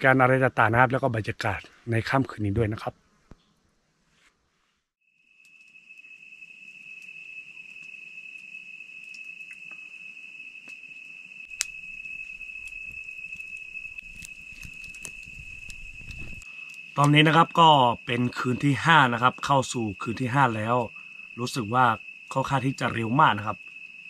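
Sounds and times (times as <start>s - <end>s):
night insects calling: 0.0s - 3.6s, 5.0s - 24.0s
wood fire crackling: 5.4s - 23.8s.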